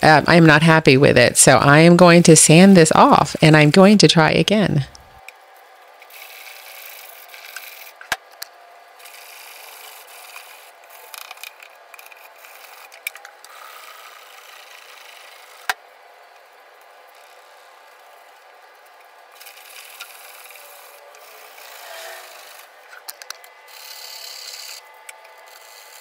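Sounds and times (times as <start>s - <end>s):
sandpaper rasping on wood: 19.4s - 22.7s.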